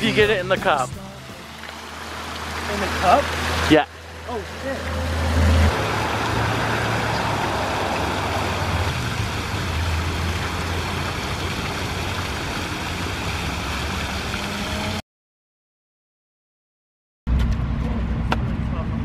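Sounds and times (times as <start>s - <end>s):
fountain water splashing: 0.0s - 15.0s.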